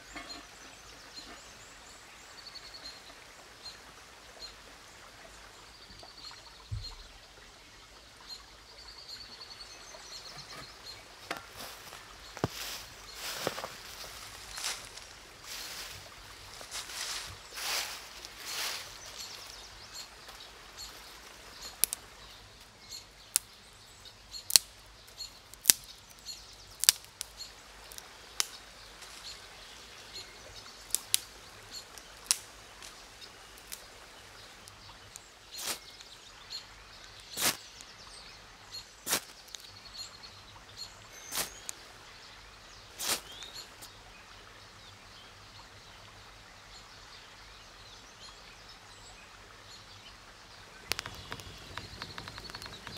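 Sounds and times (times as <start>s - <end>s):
birdsong: 0.0s - 52.9s
river flowing: 0.0s - 52.9s
dry twigs snapping: 21.7s - 22.1s, 24.5s - 24.8s, 25.5s - 29.2s, 30.9s - 33.0s, 33.6s - 33.9s, 34.6s - 36.1s, 37.0s - 37.6s, 39.1s - 39.7s, 41.3s - 41.8s, 43.0s - 43.5s, 50.8s - 52.9s.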